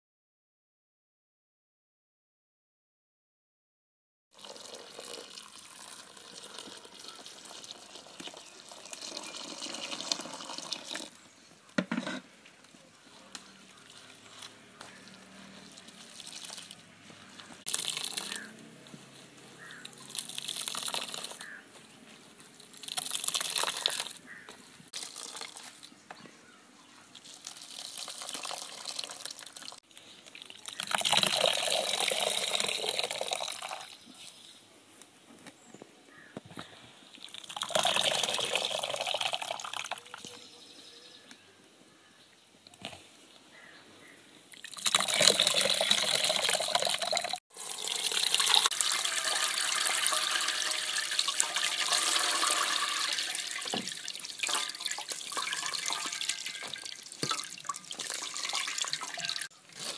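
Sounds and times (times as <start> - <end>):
liquid running into bowl: 4.4 - 11.2, 17.7 - 18.5, 20.0 - 21.4, 22.7 - 24.1, 27.2 - 33.9, 37.2 - 40.0, 44.6 - 59.5.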